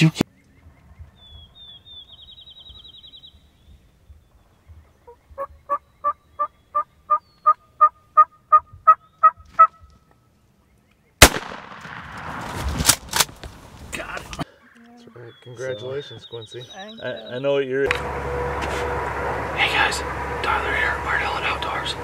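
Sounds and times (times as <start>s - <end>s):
wild turkey yelping: 5.0s - 9.9s
shotgun blast: 11.2s - 13.0s.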